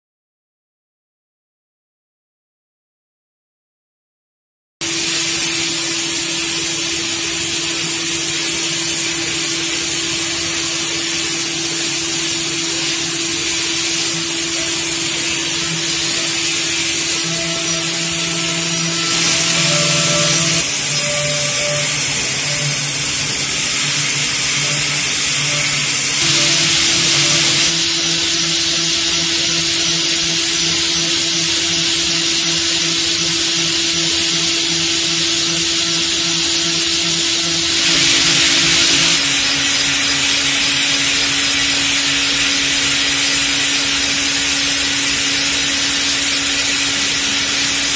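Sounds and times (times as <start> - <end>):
hissing metal cutting noise: 4.8 - 47.9
spindle whine: 9.1 - 39.3.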